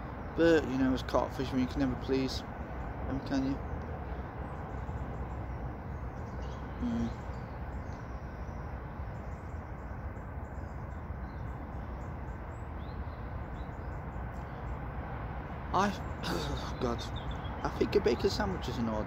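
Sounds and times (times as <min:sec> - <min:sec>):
low outdoor rumble: 0:00.0 - 0:19.0
faint bird chirps: 0:03.1 - 0:14.8, 0:15.8 - 0:18.9
low hoot-like note: 0:06.7 - 0:07.3.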